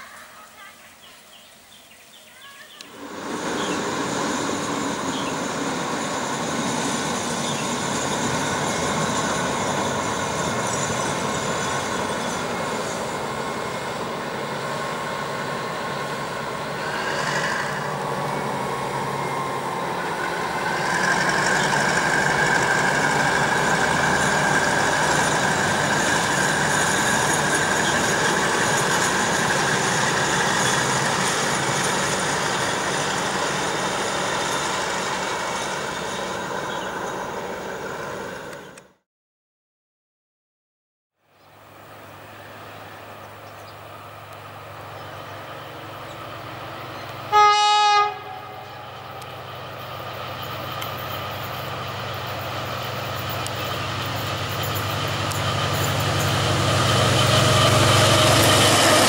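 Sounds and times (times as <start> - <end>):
diesel locomotive engine: 0.0 - 39.0, 41.2 - 59.0.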